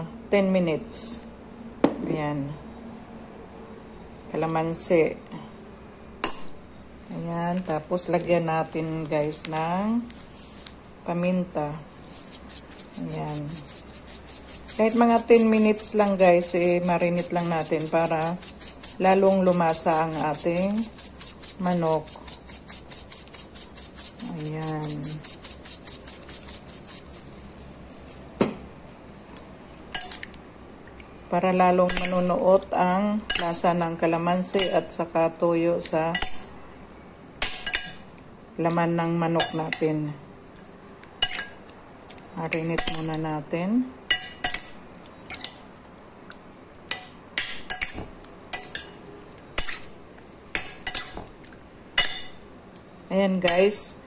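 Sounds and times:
pepper shaker rattling: 11.8s - 28.2s.

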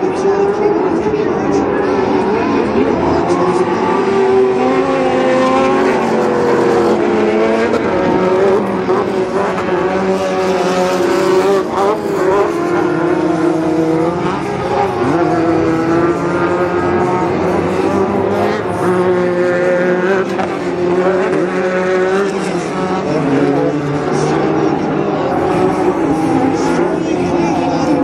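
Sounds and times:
race truck engines revving: 0.0s - 28.0s.

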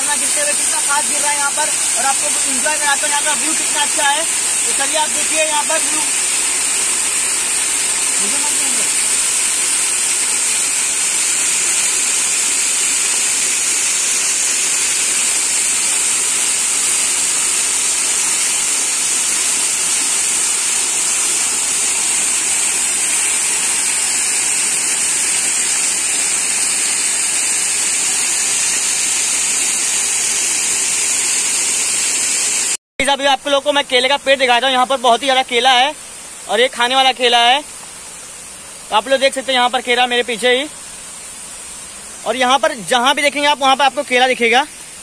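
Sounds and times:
waterfall rushing onto boulders: 0.0s - 45.0s.

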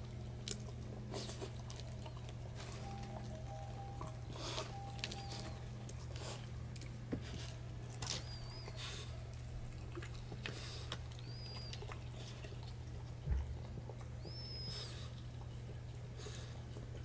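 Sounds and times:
dog chewing: 0.0s - 17.0s
low steady hum: 0.0s - 17.0s.

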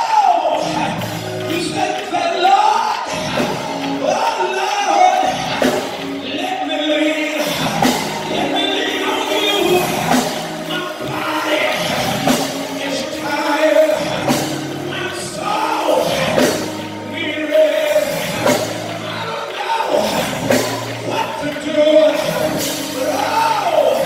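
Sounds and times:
church band instruments: 0.0s - 24.0s
people singing worship music: 0.0s - 24.0s.

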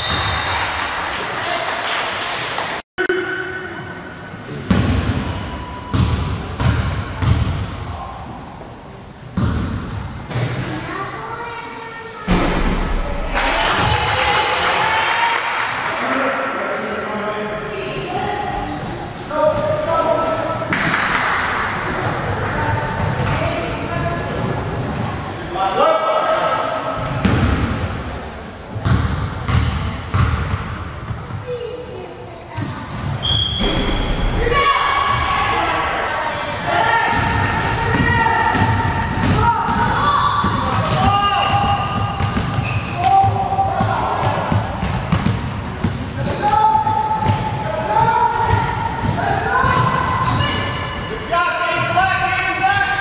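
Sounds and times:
basketball bouncing on gym floor: 5.9s - 7.7s, 9.4s - 10.6s, 28.8s - 31.3s, 37.1s - 46.0s.

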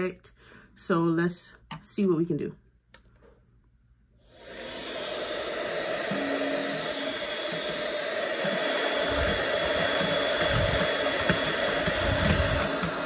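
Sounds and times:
vacuum motor whirring with high whine: 4.2s - 13.0s.

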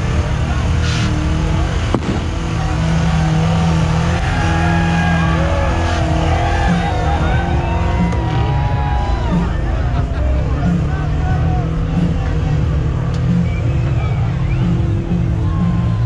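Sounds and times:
crowd voices: 0.0s - 16.0s
engine running hard: 0.0s - 16.0s
sharp crack: 1.8s - 2.8s.

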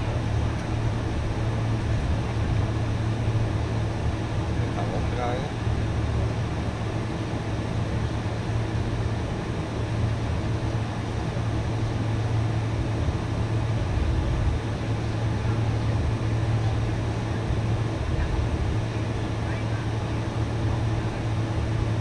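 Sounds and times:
jet engines humming in cabin: 0.0s - 22.0s.

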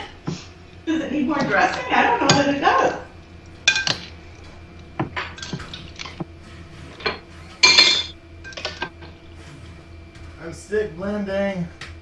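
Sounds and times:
dishes and utensils clattering: 1.4s - 3.0s, 3.6s - 4.2s, 5.0s - 6.2s, 6.8s - 9.2s.

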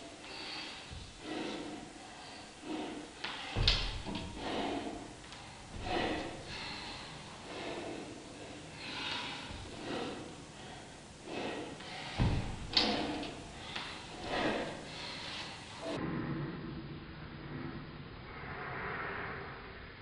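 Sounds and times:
person breathing hard: 0.0s - 16.0s
dull thump: 12.2s - 13.2s.

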